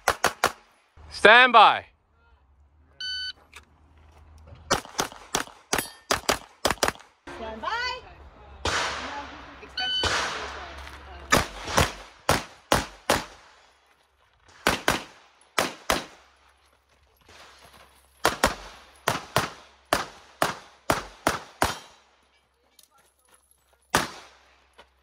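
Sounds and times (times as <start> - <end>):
pistol shots: 0.0 - 0.7, 4.7 - 7.1, 8.6 - 9.3, 11.3 - 13.6, 14.6 - 16.2, 18.2 - 22.1, 23.9 - 24.4.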